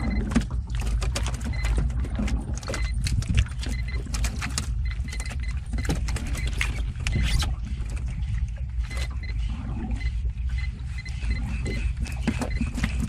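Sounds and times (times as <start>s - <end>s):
splashes and knocks: 0.0s - 7.0s
water slapping against boat hull: 0.0s - 9.2s.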